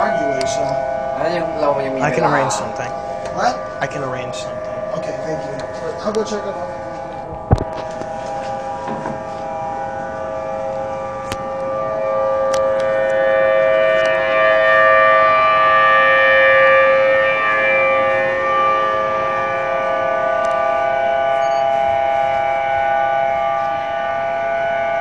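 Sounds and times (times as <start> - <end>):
warning siren steady tone: 0.0 - 25.0.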